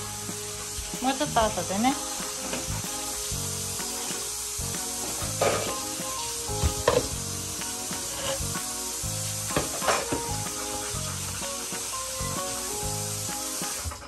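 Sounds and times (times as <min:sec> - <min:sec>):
soft background music: 0:00.0 - 0:14.0
tap water running into sink: 0:00.0 - 0:14.0
dishes clattering: 0:05.2 - 0:05.8, 0:06.6 - 0:07.2, 0:09.5 - 0:10.4.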